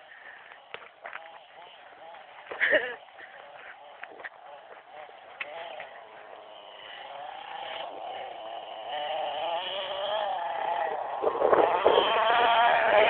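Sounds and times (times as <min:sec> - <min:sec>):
small nitro engine running: 0:00.0 - 0:13.0.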